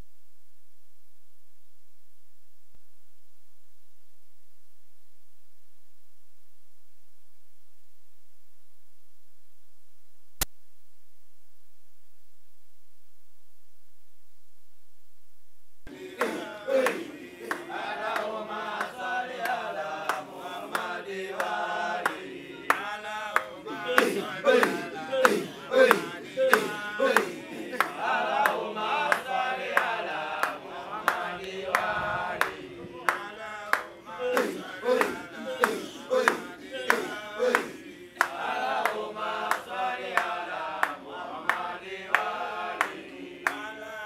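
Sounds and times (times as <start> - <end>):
men chanting together: 15.9 - 44.0.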